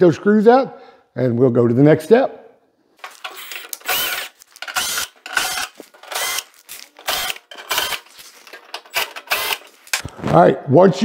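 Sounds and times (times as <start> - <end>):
power driver whining: 3.0 - 10.0.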